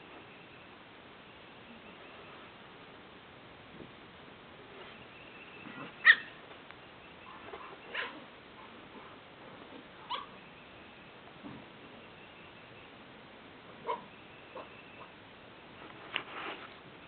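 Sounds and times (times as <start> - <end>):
small dogs barking: 5.6 - 6.4, 7.2 - 9.2, 10.0 - 10.4, 13.8 - 15.2.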